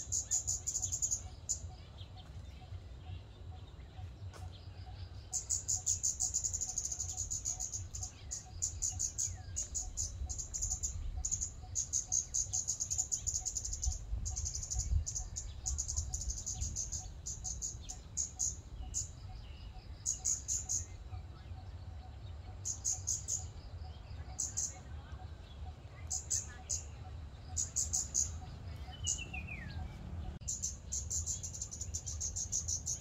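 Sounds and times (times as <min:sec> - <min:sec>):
bird high-pitched calls: 0:04.0 - 0:33.0.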